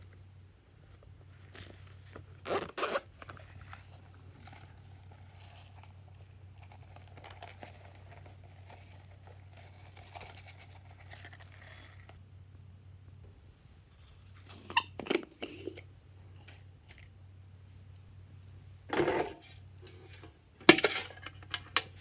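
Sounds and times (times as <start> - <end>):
faint plastic crinkling: 0.8 - 12.2
zipper rasp: 2.4 - 3.1.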